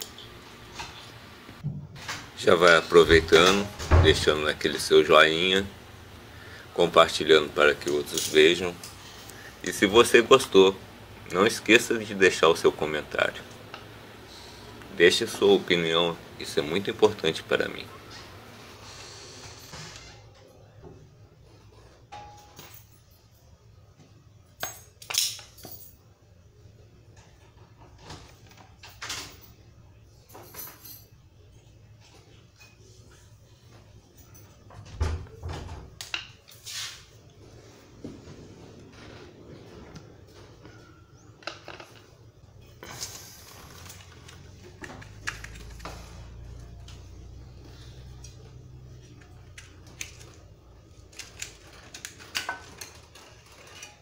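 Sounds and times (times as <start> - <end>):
metal tools clinking and knocking: 7.8 - 9.0, 24.6 - 26.0.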